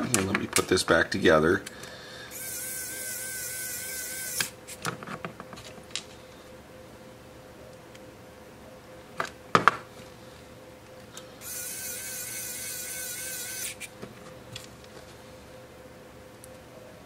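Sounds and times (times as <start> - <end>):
electric screwdriver whine: 2.3 - 4.6, 11.4 - 13.9.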